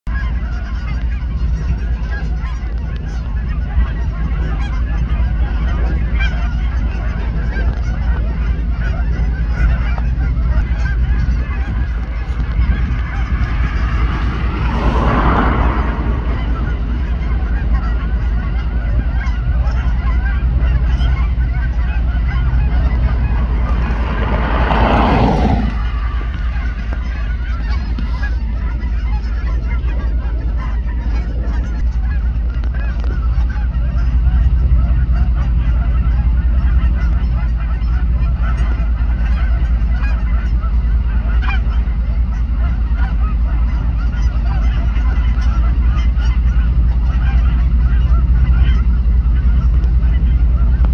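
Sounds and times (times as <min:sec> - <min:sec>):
low rumble: 0:00.0 - 0:50.9
flock of geese honking: 0:00.1 - 0:50.9
brief rushing sounds: 0:10.1 - 0:28.7.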